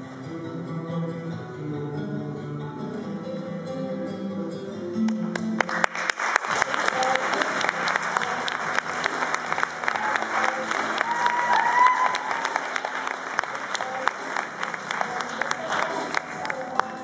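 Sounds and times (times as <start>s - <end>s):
music: 0.0s - 17.0s
audience applause: 5.3s - 17.0s.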